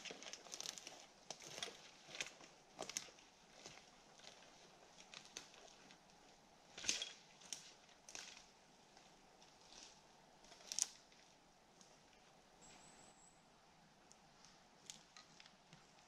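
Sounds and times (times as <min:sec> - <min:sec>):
faint steady hiss: 0:00.0 - 0:16.0.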